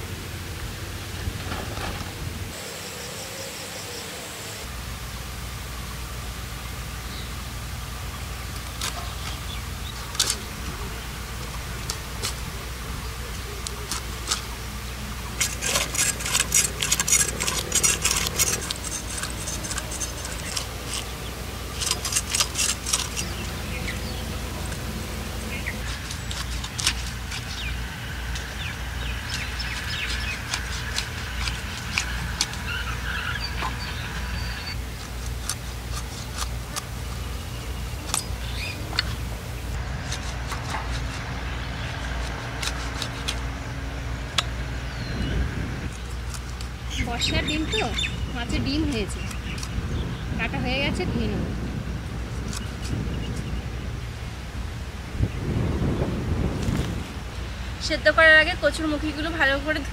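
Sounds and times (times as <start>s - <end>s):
steady low rumble: 0.0s - 59.9s
knife scraping fish scales: 15.4s - 24.8s, 25.5s - 33.8s, 34.7s - 36.9s, 39.8s - 43.5s.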